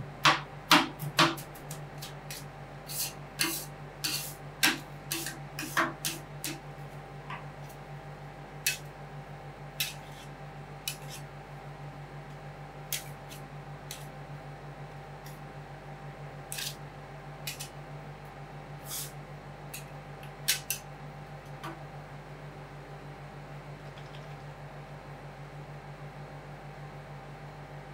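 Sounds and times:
low steady hum: 0.0 - 27.9
metal spatulas scraping on steel: 2.3 - 6.6, 9.8 - 11.2, 16.5 - 16.8.

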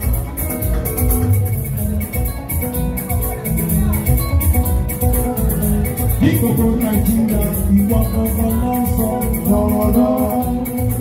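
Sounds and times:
live band playing dance music: 0.0 - 11.0.

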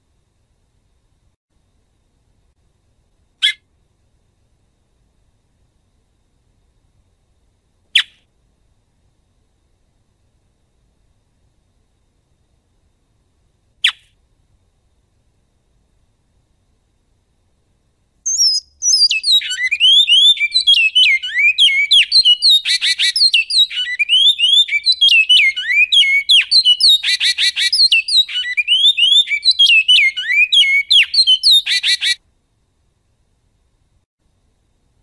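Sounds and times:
finch whistled song: 8.0 - 8.2, 18.3 - 32.2.

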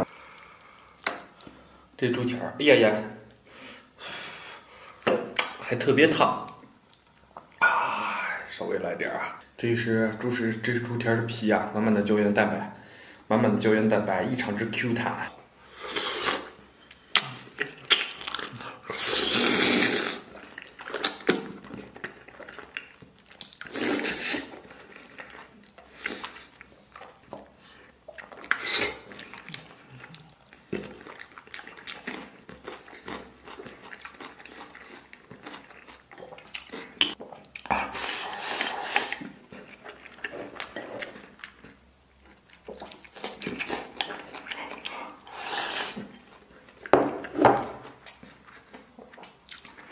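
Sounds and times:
sucking and chewing: 15.8 - 49.9.

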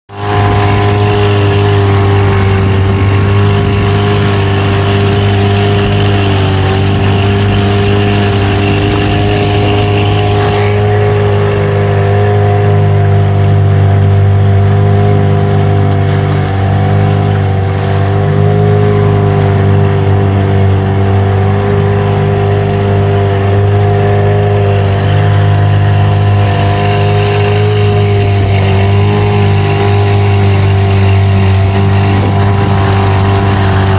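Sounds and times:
motorboat engine drone: 0.1 - 33.9
wind and water hiss: 12.7 - 33.9.

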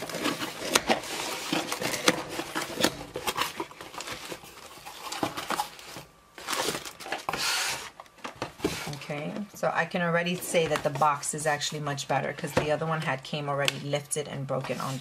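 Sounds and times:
plastic packing rustling: 0.0 - 9.2
scraping of cardboard flaps: 6.6 - 8.0.

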